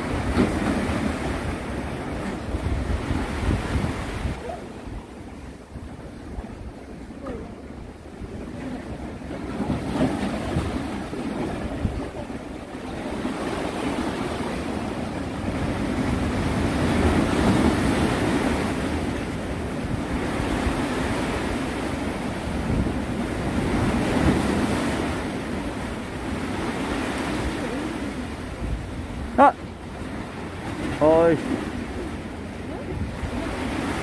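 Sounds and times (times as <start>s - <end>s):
wind on microphone: 0.0s - 13.4s, 32.6s - 34.0s
sea waves washing: 0.0s - 34.0s.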